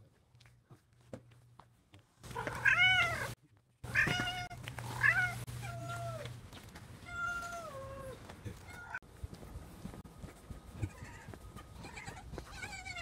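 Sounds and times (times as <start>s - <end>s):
cat meowing: 2.4s - 6.3s, 7.0s - 9.0s.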